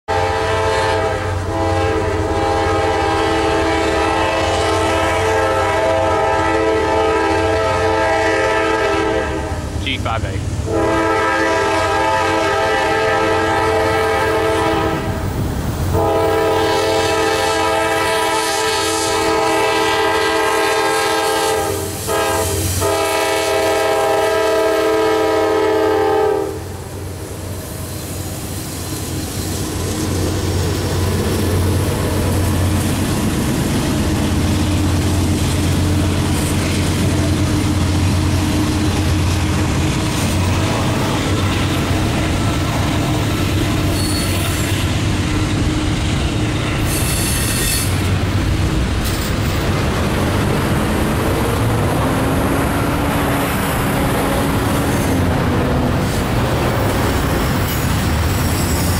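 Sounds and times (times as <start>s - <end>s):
locomotive air horn blasts: 0.1s - 9.7s, 10.6s - 15.2s, 15.9s - 26.7s
diesel locomotive rumble: 0.1s - 58.9s
freight cars rumbling and clattering: 29.2s - 47.0s, 47.9s - 58.9s.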